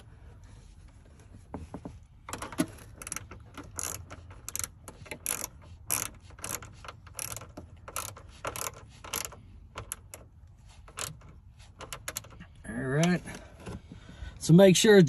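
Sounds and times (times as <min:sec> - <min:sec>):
hand ratchet clicking: 0:02.3 - 0:12.4.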